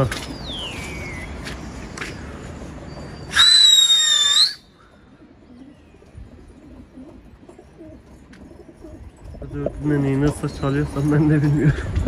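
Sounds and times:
loud high whistle: 3.3 - 4.6
pigeon cooing: 6.4 - 9.1.

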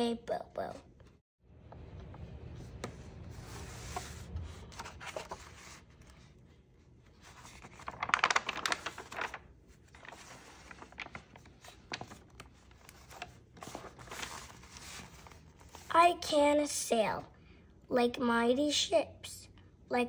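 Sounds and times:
book pages turning: 2.0 - 15.9.

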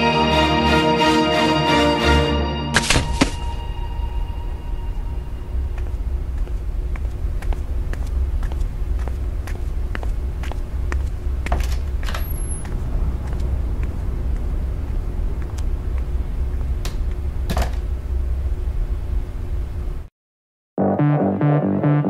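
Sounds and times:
low background rumble: 3.4 - 20.1.

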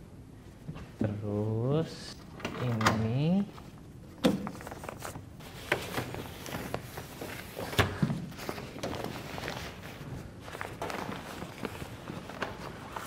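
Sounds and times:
plastic cover rustling and crinkling: 3.5 - 13.0.

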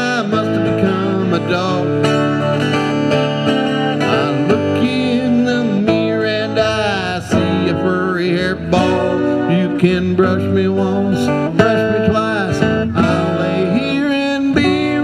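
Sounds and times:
acoustic guitar playing: 0.0 - 15.0.

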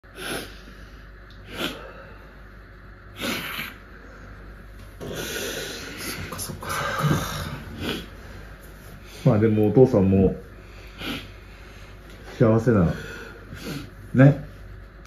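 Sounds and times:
snuffly breathing: 0.0 - 2.5, 3.1 - 9.4, 10.5 - 12.0, 12.7 - 14.1
person sniffing: 0.1 - 0.7, 1.4 - 2.0, 3.2 - 3.8, 10.8 - 11.4.

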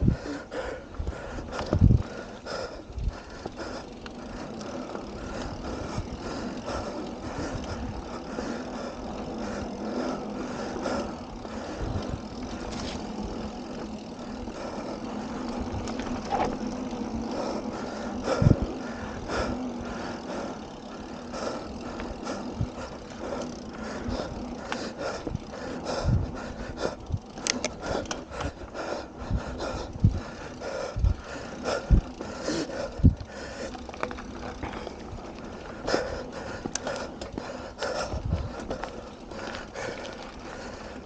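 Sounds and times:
bicycle tyres on dirt trail: 0.0 - 41.0
bike rattling and knocking: 0.0 - 41.0.

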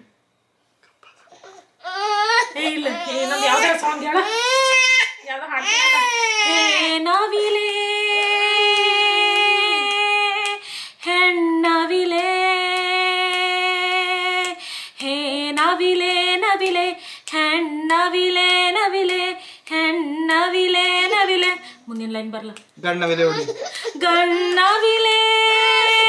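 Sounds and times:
woman singing unaccompanied: 5.8 - 22.7, 23.9 - 26.0.

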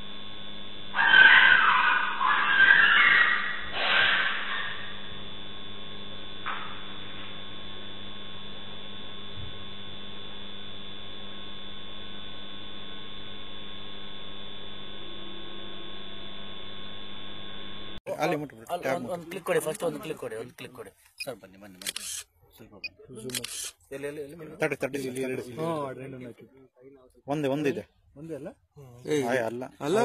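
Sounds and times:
electrical hum: 0.0 - 30.0
dog yelping in distress: 1.0 - 5.0.

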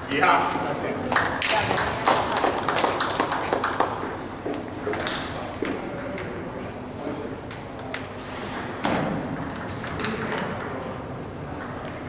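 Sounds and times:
table tennis balls clicking: 9.2 - 12.0.

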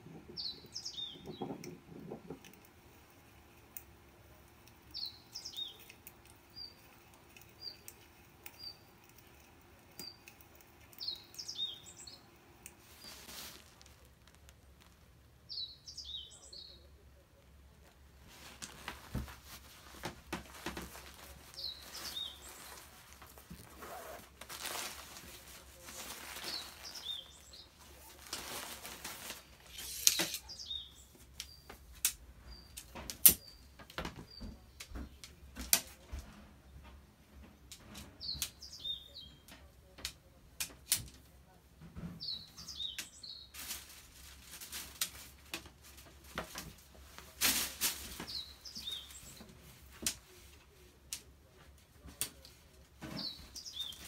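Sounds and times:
tent pole sections clicking: 0.0 - 15.2, 17.4 - 34.2, 44.6 - 51.3
bird chirps: 0.2 - 1.7, 4.9 - 6.9
tent fabric rustling: 12.8 - 15.1, 18.1 - 30.4, 43.5 - 50.4.

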